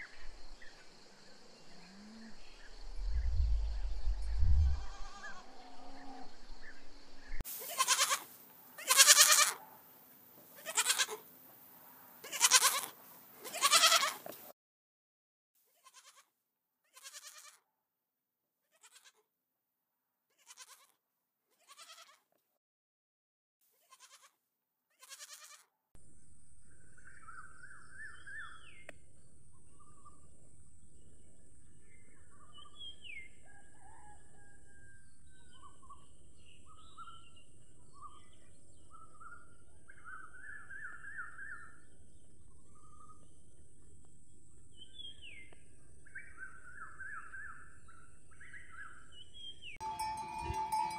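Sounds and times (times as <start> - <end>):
young goats bleating: 4.6 - 6.1, 7.6 - 9.6, 10.6 - 11.2, 12.2 - 14.2, 15.8 - 16.3, 16.9 - 17.6, 18.7 - 19.2, 20.4 - 20.9, 21.6 - 22.2, 23.8 - 24.3, 25.0 - 25.6
steady high hiss: 6.7 - 9.2
birds chirping: 26.6 - 50.9.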